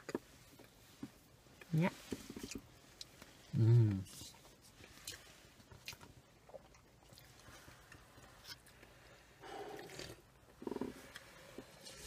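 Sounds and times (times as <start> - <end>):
quiet sipping: 2.0 - 12.0
coffee slurps: 9.4 - 12.0.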